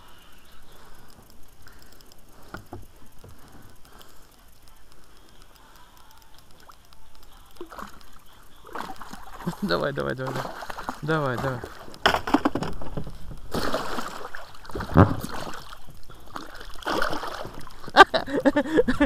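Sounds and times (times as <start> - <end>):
water splashing: 6.5 - 18.4
water lapping against boat: 7.6 - 18.4.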